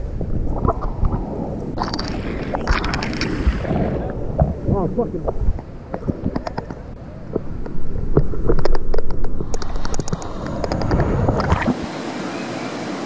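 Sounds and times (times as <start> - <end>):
water sloshing and splashing: 0.0 - 12.0
steady water hiss: 0.0 - 13.0
wave breaking rumble: 1.2 - 8.1.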